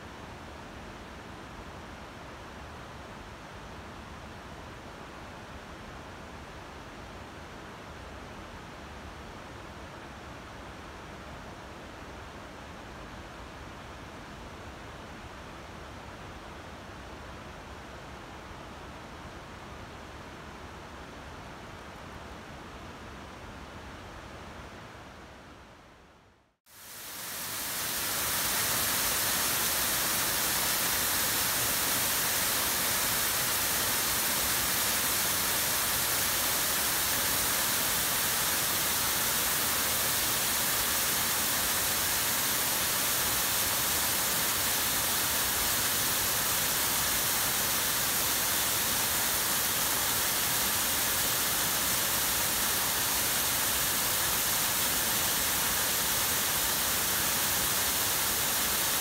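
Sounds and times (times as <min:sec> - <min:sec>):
waterfall rushing and splashing: 0:26.8 - 0:59.0.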